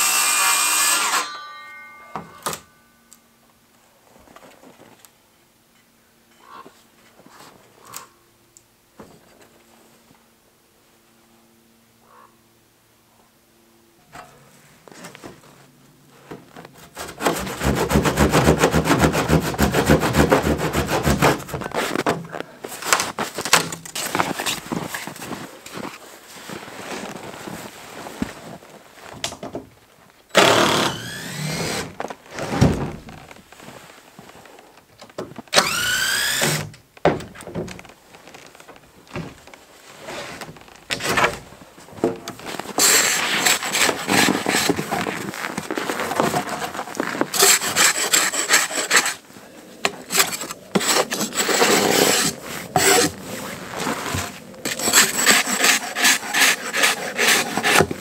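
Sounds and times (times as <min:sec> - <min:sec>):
handsaw cutting wood: 0:17.0 - 0:22.0, 0:30.4 - 0:31.9, 0:35.6 - 0:36.7, 0:42.7 - 0:44.8, 0:47.3 - 0:49.2, 0:49.9 - 0:58.0.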